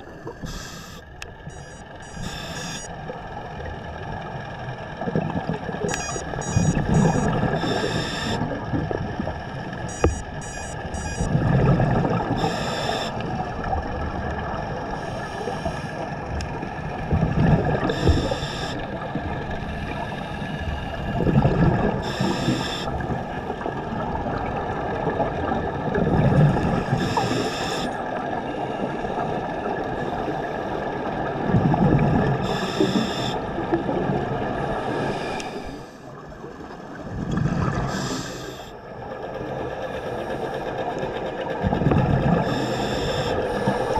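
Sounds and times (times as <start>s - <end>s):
underwater hum: 0.0s - 43.9s
regulator inhalation hiss: 0.4s - 1.1s, 7.6s - 8.4s, 12.4s - 13.2s, 18.0s - 18.8s, 32.5s - 33.4s, 37.9s - 38.7s, 42.5s - 43.9s
exhaled bubbles rumbling: 3.6s - 9.9s, 10.8s - 12.4s, 16.1s - 20.0s, 21.1s - 22.0s, 23.0s - 27.0s, 31.1s - 32.4s, 36.1s - 38.1s, 41.6s - 42.6s.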